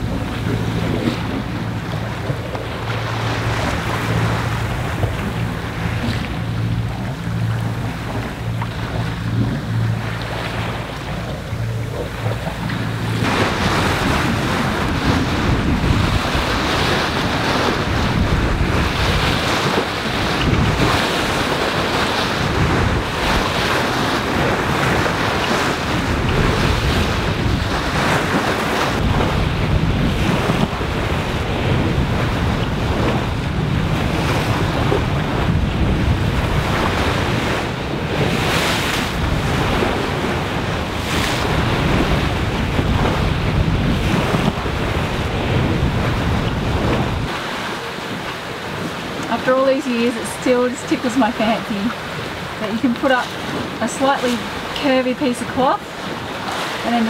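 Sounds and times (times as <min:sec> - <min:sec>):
water splashing along a hull: 0:00.0 - 0:57.0
wind buffeting microphone: 0:00.0 - 0:57.0.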